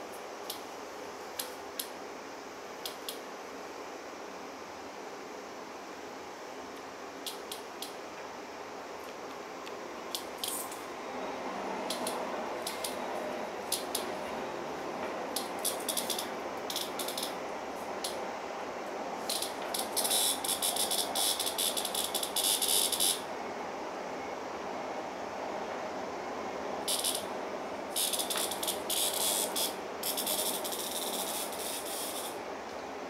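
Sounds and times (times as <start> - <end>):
cicada distress buzzes: 5.6 - 23.4, 26.8 - 32.5.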